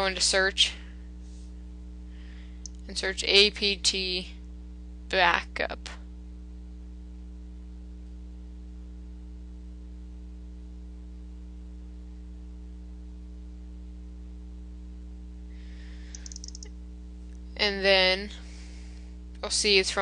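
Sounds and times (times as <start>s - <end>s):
electrical hum: 0.0s - 20.0s
tiny clicks: 16.1s - 16.7s.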